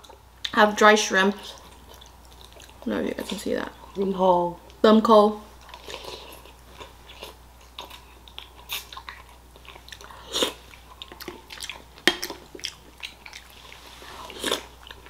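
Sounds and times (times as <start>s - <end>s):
wet chewing and mouth smacks: 1.5s - 2.9s, 5.6s - 15.0s.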